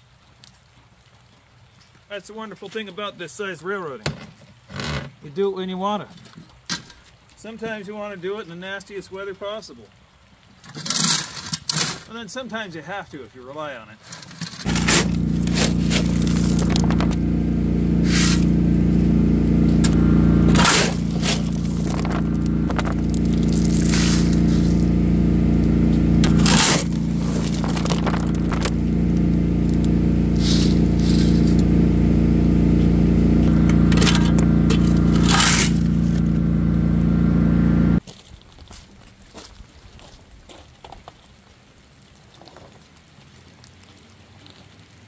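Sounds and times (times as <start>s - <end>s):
shovel scraping metal trailer bed: 14.1s - 17.2s, 18.0s - 18.6s, 19.7s - 24.9s, 26.1s - 28.8s, 30.3s - 31.6s, 33.4s - 36.4s
lawn tractor engine running: 14.6s - 38.0s.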